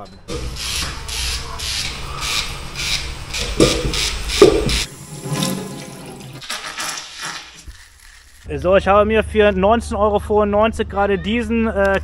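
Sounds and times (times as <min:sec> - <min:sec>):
razor scraping through beard: 0:00.3 - 0:04.9.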